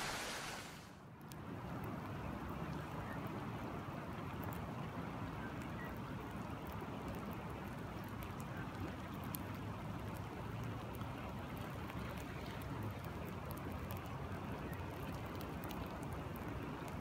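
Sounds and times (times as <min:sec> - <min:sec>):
river rushing: 0:00.0 - 0:00.9
rain falling on water: 0:00.0 - 0:17.0.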